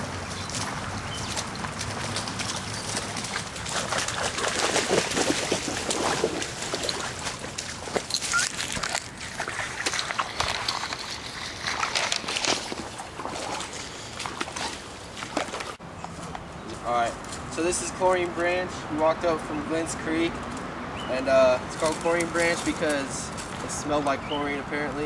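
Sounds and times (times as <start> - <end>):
feet splashing through water: 0.0 - 15.8
stream trickling over stones: 0.0 - 15.8.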